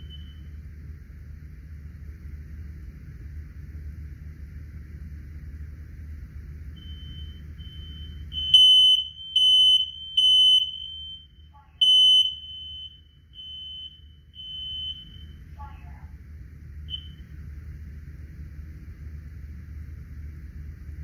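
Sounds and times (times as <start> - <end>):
smoke alarm beeping: 0.0 - 0.5, 6.8 - 15.4, 16.9 - 17.3.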